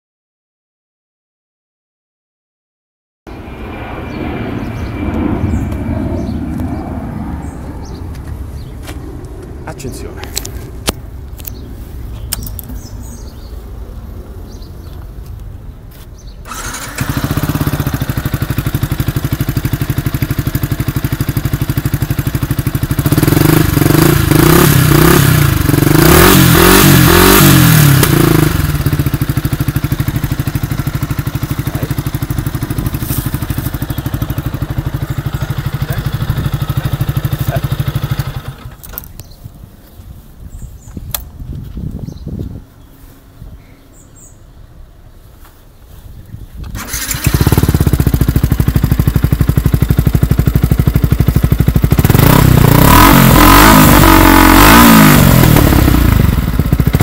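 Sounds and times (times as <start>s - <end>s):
motorcycle engine idling: 16.4s - 26.0s, 26.7s - 39.2s, 46.8s - 57.0s
motorcycle engine revving: 16.4s - 39.0s, 46.6s - 57.0s.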